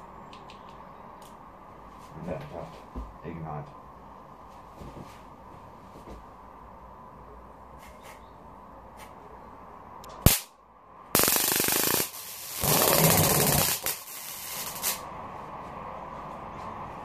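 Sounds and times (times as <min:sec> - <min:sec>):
rushing gas bursts: 0:11.2 - 0:15.0
fireball flare-ups: 0:11.2 - 0:15.1.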